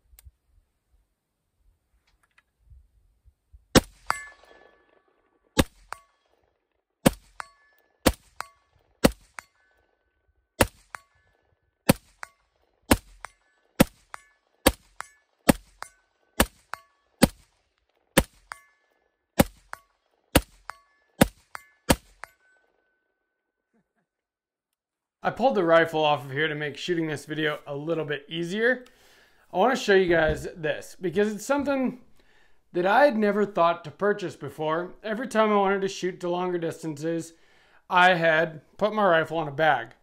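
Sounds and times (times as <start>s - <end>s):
rifle shots: 3.7s - 6.4s, 7.0s - 9.5s, 10.6s - 11.2s, 11.9s - 18.6s, 19.4s - 22.3s
ring of struck steel target: 3.8s - 4.7s.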